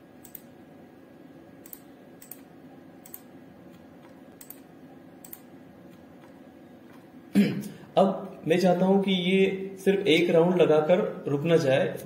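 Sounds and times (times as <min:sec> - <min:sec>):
faint room hum: 0:00.0 - 0:12.0
computer mouse clicking: 0:00.2 - 0:00.5, 0:01.6 - 0:07.0.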